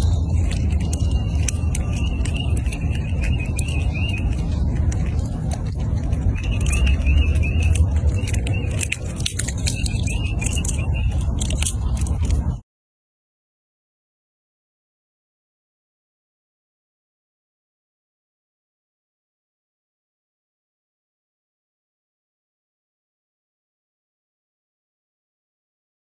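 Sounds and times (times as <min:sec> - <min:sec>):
high warbling chirp: 0:00.0 - 0:12.3
squirrel gnawing a nut: 0:00.0 - 0:12.6
steady low rumble: 0:00.0 - 0:12.6.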